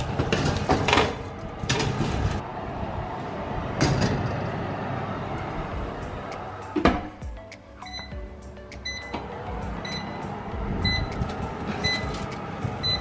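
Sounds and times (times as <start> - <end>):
oven rack and tray clattering: 0.0 - 2.4, 3.7 - 4.7, 9.0 - 13.0.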